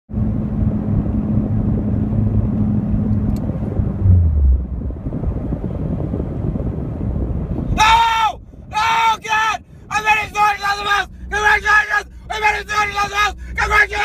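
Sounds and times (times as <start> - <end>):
low hum falling in pitch: 0.1 - 7.4
car engine drone: 0.1 - 7.8, 9.6 - 14.0
road rumble: 0.1 - 14.0.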